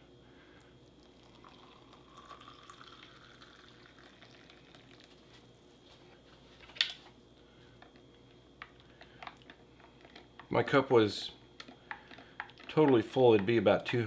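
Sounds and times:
hot water pouring into a mug: 1.0s - 5.2s.

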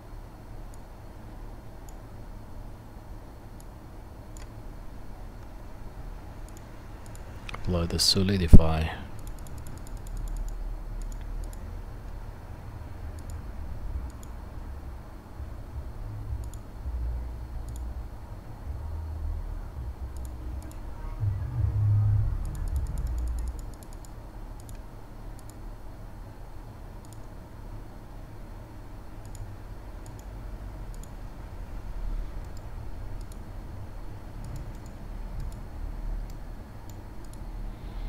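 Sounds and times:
low rumble: 18.7s - 23.8s.

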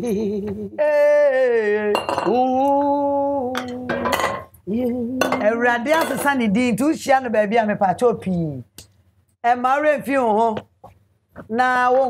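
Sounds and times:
woman singing long notes: 0.4s - 4.1s, 4.7s - 5.4s.

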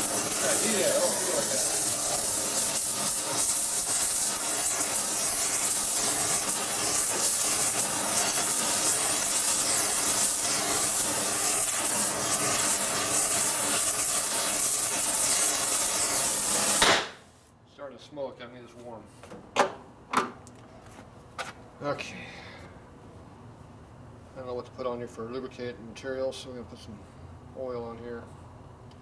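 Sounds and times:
torch flame hissing: 0.0s - 17.3s.

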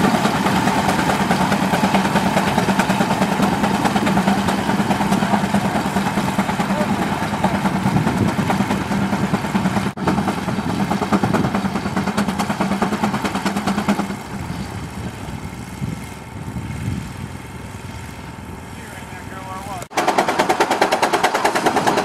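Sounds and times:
tractor engine running: 0.0s - 22.0s.

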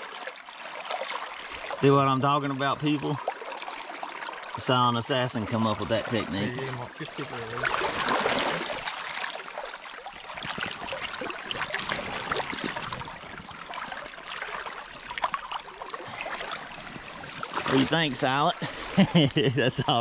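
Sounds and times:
water splashing and sloshing: 0.0s - 20.0s
river current rushing: 5.7s - 19.1s.

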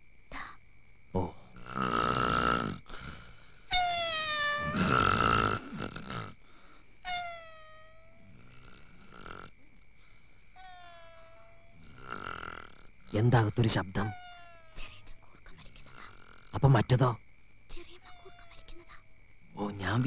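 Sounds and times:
harsh rasping snores: 1.6s - 3.6s, 4.6s - 6.4s, 8.2s - 9.6s, 11.7s - 13.2s, 15.8s - 16.6s.

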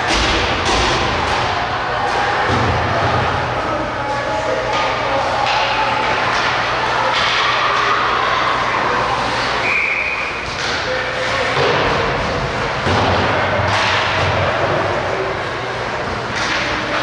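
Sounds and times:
hockey sticks and puck thudding: 0.0s - 3.5s, 4.6s - 8.1s, 9.2s - 15.2s, 16.0s - 17.0s
steady rink din: 0.0s - 17.0s.

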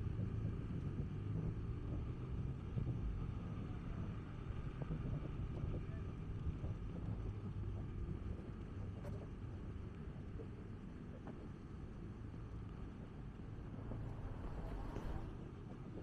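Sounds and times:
wind rumbling on microphone: 0.0s - 16.0s
traffic engines humming: 12.1s - 16.0s.

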